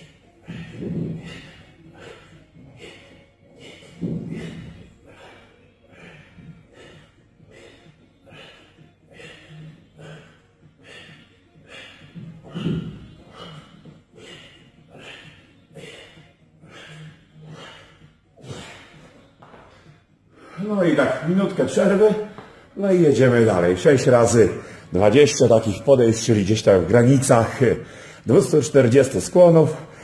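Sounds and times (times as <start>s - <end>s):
man breathing hard: 0.0s - 21.1s, 24.4s - 24.9s, 27.8s - 28.3s, 29.7s - 30.0s.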